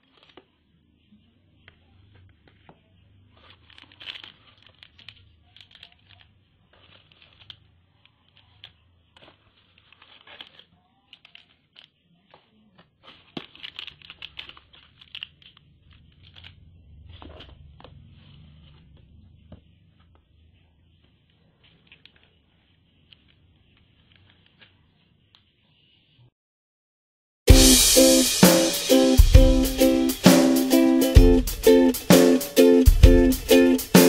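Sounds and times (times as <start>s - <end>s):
plastic wrappers crinkling: 0.0s - 0.5s, 2.2s - 17.6s
plastic toy pieces clicking: 3.4s - 16.6s.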